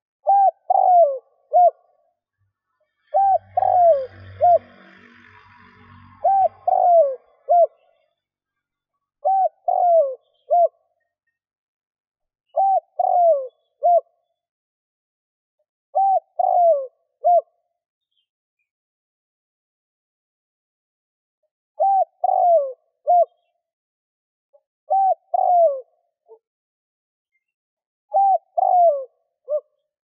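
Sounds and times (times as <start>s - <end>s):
dove cooing: 0.2s - 1.9s, 3.1s - 4.8s, 6.2s - 7.9s, 9.2s - 10.8s, 12.6s - 14.1s, 16.0s - 17.5s, 21.8s - 23.3s, 24.9s - 25.9s, 28.1s - 29.7s.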